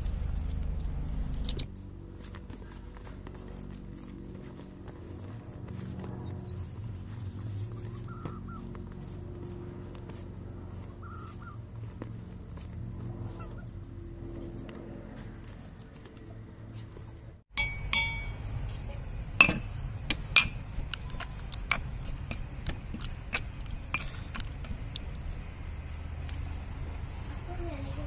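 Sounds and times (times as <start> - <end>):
low steady hum: 0.0 - 28.0
steel lid clinking: 17.6 - 18.5, 19.4 - 20.7
pestle pounding in mortar: 19.4 - 25.2.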